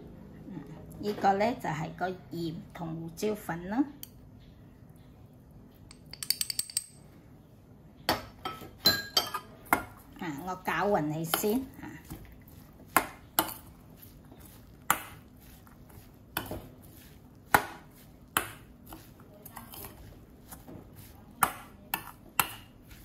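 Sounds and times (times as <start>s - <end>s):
spoon clinking against metal bowl: 5.9s - 7.0s, 8.4s - 9.5s
metal spoon scraping mixture: 9.2s - 23.0s.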